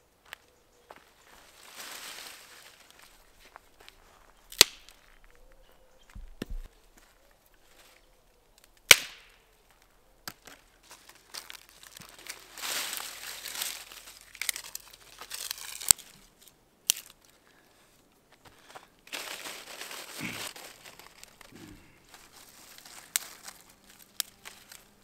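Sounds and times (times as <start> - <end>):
dry branches rustling: 0.2 - 25.0
dry leaves rustling: 0.9 - 8.1, 8.9 - 17.4, 18.5 - 25.0
sharp wooden cracks: 4.5 - 5.3, 8.6 - 9.4, 10.2 - 16.2, 16.8 - 17.4
wood knocking on ground: 6.1 - 6.7.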